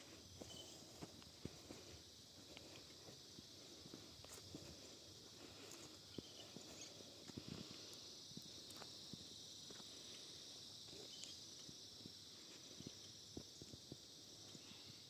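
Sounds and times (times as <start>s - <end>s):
soft footsteps: 0.0s - 10.3s
insects chirring: 0.0s - 15.0s.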